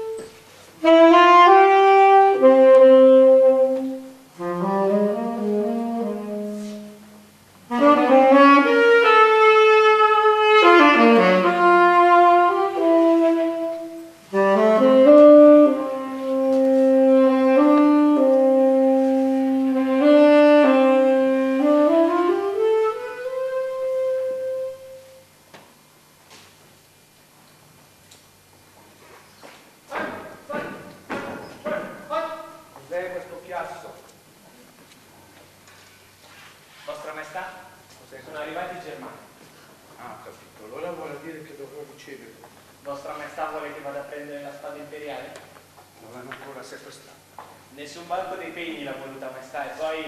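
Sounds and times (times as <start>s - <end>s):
solo saxophone melody: 0.0s - 25.4s.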